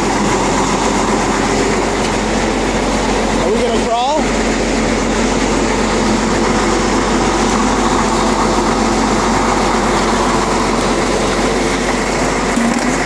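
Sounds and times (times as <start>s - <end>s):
crane engine running: 0.0s - 13.0s.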